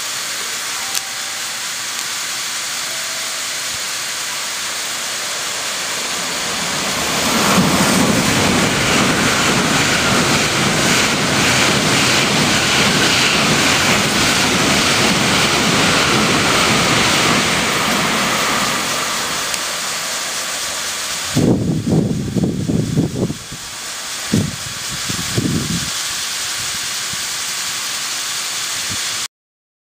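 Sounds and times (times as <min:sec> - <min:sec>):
sprinklers hissing: 0:00.0 - 0:29.3
train rushing past: 0:00.0 - 0:29.3
wind buffeting microphone: 0:06.4 - 0:18.9, 0:21.2 - 0:27.3.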